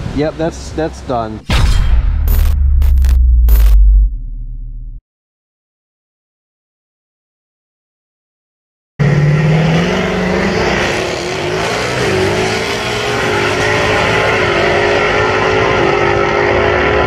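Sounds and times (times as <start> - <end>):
drag car engines at full throttle: 9.0 - 17.0.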